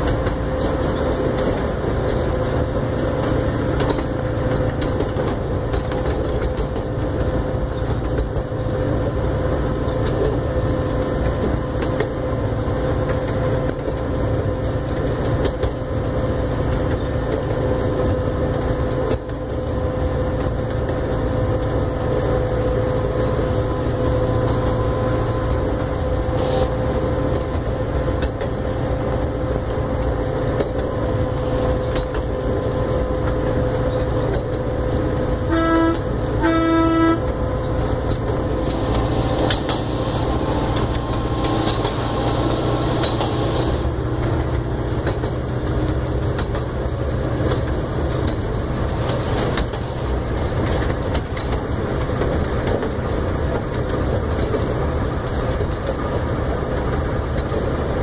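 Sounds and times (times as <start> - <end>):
miniature train rumbling on track: 0.0 - 58.0
train horn toots: 35.3 - 37.4.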